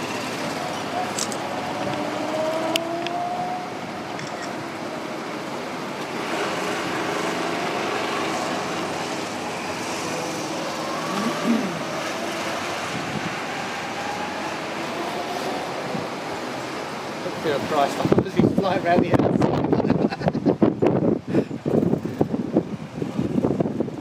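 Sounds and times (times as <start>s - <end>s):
go-kart engines accelerating: 0.0s - 18.2s.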